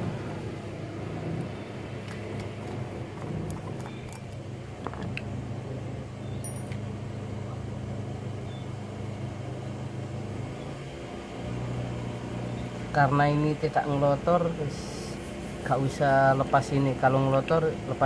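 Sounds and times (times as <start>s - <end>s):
engine humming: 0.0s - 18.0s
metallic clink: 6.4s - 6.8s.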